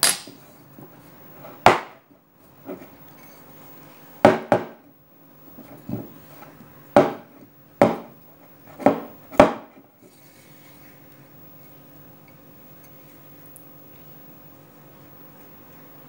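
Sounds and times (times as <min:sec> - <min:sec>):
bowl knocking on counter: 0:04.3 - 0:04.8.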